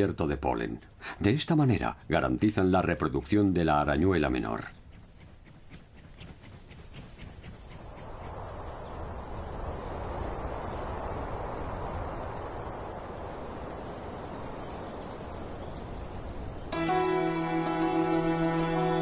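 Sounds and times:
crickets chirring: 0.0 - 19.0
soft rushing noise: 3.5 - 16.7.

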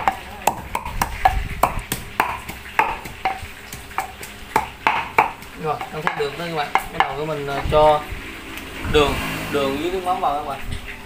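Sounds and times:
pestle pounding in wooden mortar: 0.0 - 7.8.

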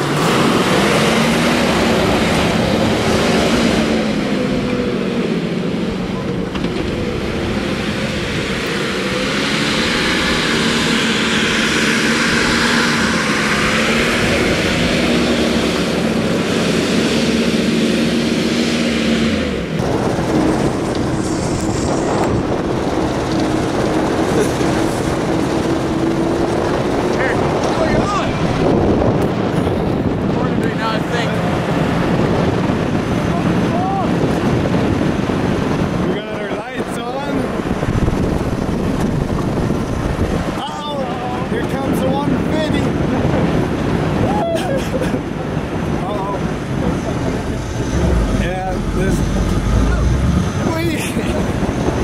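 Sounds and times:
truck engine at high revs: 0.0 - 52.0
wheels spinning on dirt: 5.6 - 44.3.

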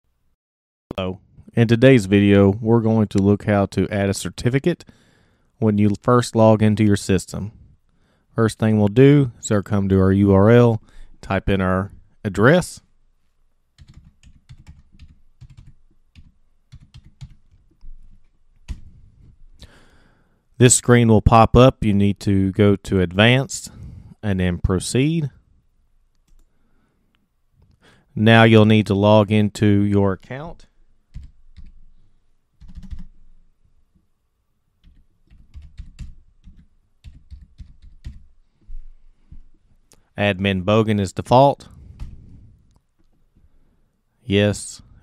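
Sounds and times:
keyboard typing: 13.8 - 18.9, 31.1 - 31.8, 32.6 - 33.2, 34.8 - 38.3.

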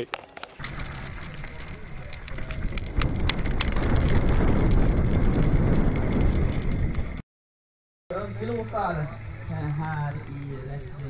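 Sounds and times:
bike rattling: 0.0 - 7.2, 8.1 - 11.0
bike tyres crunching on gravel: 0.0 - 7.2, 8.1 - 11.0
wind rumble on microphone: 0.6 - 7.2.

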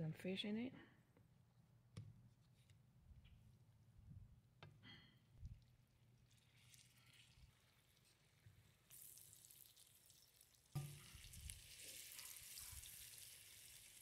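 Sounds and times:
fish sizzling in hot oil: 6.2 - 14.0.

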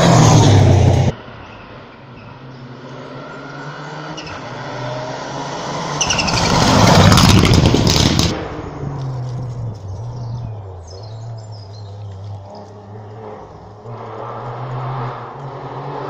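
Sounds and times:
rally car engine revving: 0.0 - 16.0
sharp cracks: 6.0 - 9.9.

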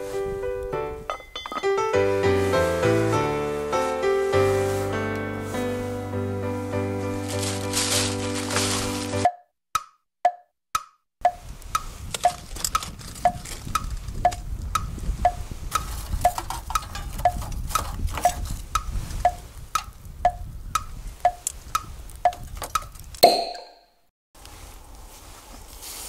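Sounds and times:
ringing chime: 1.1 - 1.9
clock ticking: 9.3 - 12.4, 13.2 - 17.4, 18.2 - 22.4.

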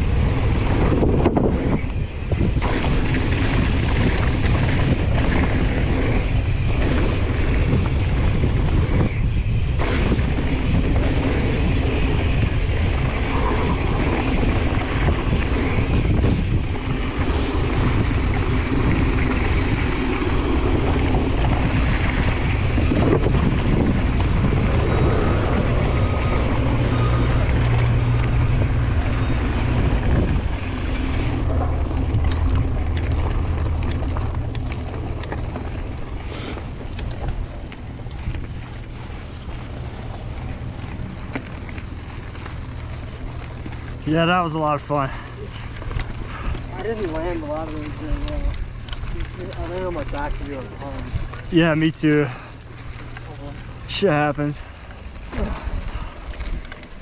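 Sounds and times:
bike tyres rolling on gravel: 0.0 - 57.0
wind buffeting microphone: 0.0 - 57.0
sharp clicks: 36.9 - 39.5.

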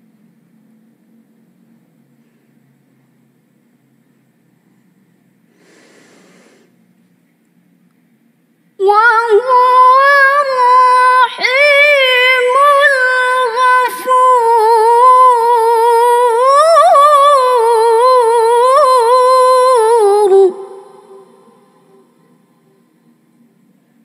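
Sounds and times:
woman chanting melodically: 8.8 - 22.9.

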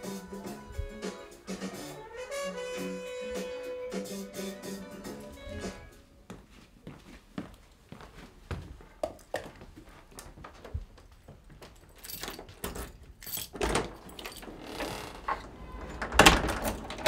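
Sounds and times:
light footsteps: 5.2 - 13.4
keys jangling: 11.8 - 17.0
door lock rattling: 12.0 - 17.0.

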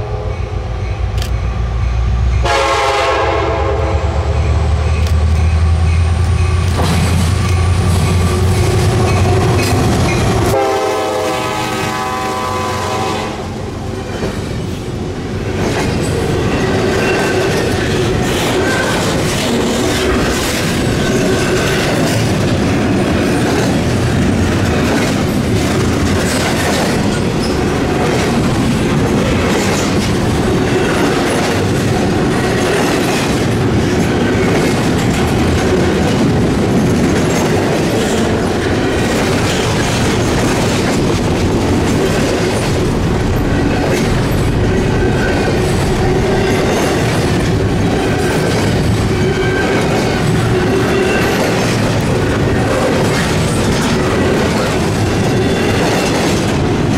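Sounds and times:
freight train rumbling past: 0.0 - 56.9
wheels clicking over rail joints: 15.6 - 56.9.

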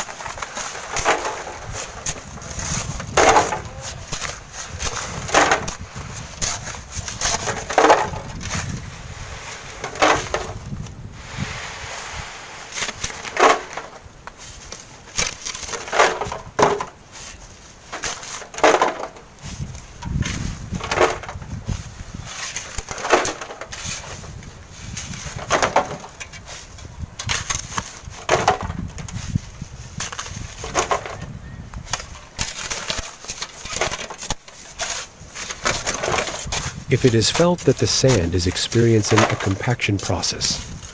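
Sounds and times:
shovels digging into sand: 31.9 - 40.8.

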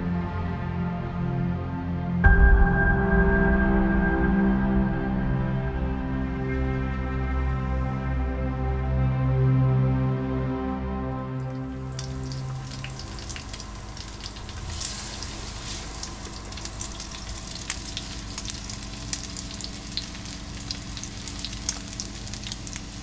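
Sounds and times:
background music: 0.0 - 23.0
food sizzling in a pan: 11.5 - 23.0.

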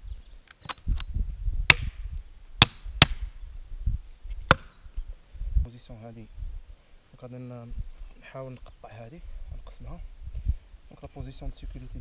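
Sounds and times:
hatchet chopping firewood: 1.7 - 1.9, 2.6 - 3.3, 4.5 - 4.8.

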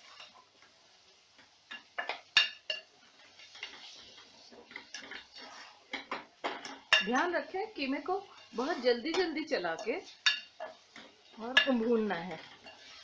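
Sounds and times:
spatula stirring meat in a pot: 0.0 - 13.0.

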